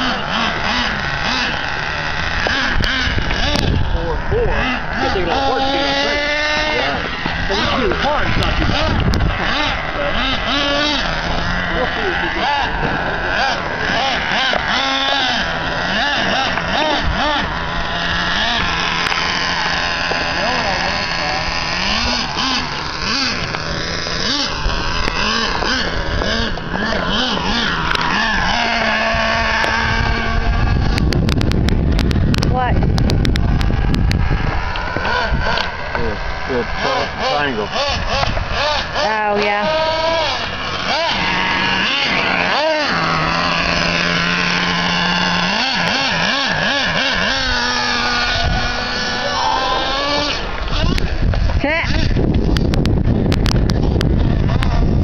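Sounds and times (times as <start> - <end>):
small nitro engine revving: 0.0 - 55.0
wind on microphone: 0.0 - 55.0
sharp clicks: 30.8 - 36.0, 50.0 - 54.8.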